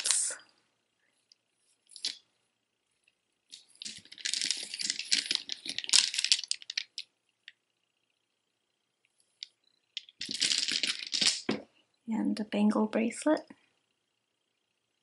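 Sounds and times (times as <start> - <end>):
hard beads clacking: 3.5 - 7.6, 9.4 - 11.6.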